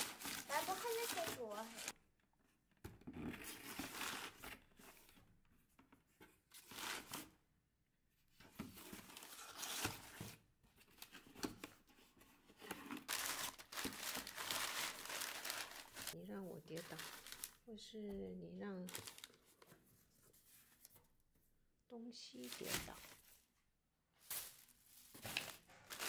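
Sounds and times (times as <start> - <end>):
newspaper crinkling and rustling: 0.0 - 1.9, 8.6 - 10.3, 12.6 - 17.7, 18.8 - 19.8, 22.3 - 23.5, 24.2 - 26.0.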